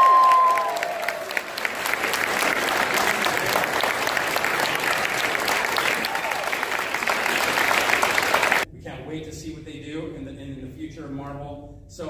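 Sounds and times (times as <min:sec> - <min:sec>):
crowd applauding: 0:00.0 - 0:08.7.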